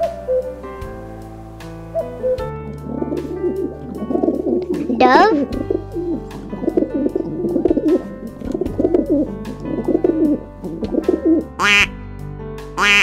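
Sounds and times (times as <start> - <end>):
light background music: 0.0 - 13.0
dove cooing: 2.0 - 11.9.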